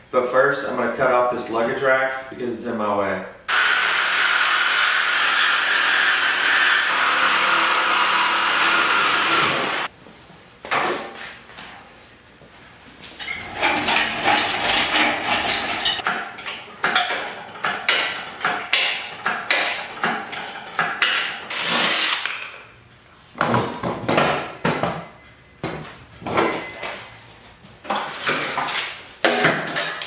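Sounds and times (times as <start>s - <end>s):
power tool burst: 3.5s - 9.9s, 21.5s - 22.4s
metal clanks of hand tools: 13.2s - 21.3s.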